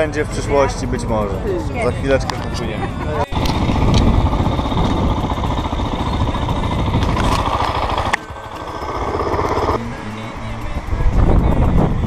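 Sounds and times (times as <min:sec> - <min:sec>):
dirt bike engine running: 0:03.3 - 0:11.8.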